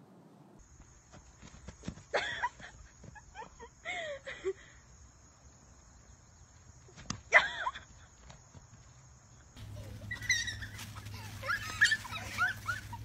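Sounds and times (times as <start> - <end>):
pony squealing: 9.6 - 13.0.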